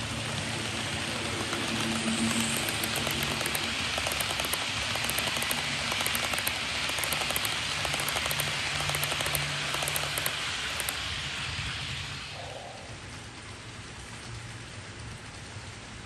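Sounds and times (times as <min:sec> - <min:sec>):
rapid clicks on track: 0:00.0 - 0:11.5
model train wheels rushing on rails: 0:00.0 - 0:16.0.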